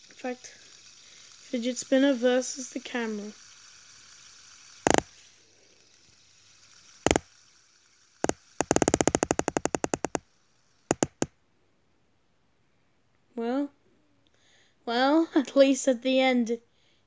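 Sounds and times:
fidget spinner clacking: 0:00.0 - 0:11.3.

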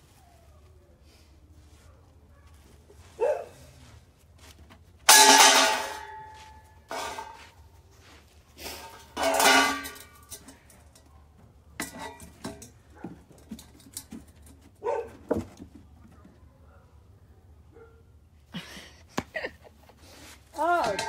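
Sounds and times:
dog barking: 0:03.2 - 0:03.6, 0:14.8 - 0:15.1, 0:16.5 - 0:18.1.

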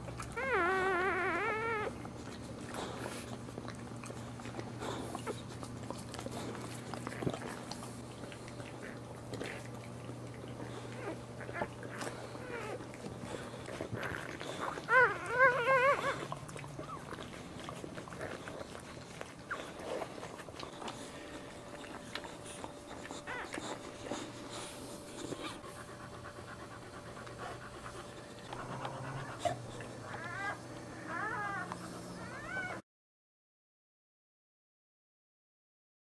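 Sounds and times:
dog panting: 0:00.0 - 0:32.8
puppies squealing: 0:00.3 - 0:02.0, 0:10.7 - 0:17.3, 0:20.7 - 0:25.7, 0:28.4 - 0:32.8.

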